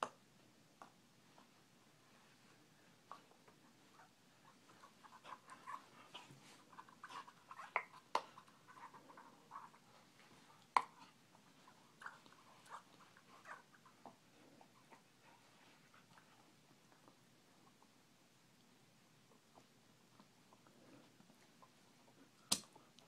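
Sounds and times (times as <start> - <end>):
dog chewing a ball: 3.0 - 17.9.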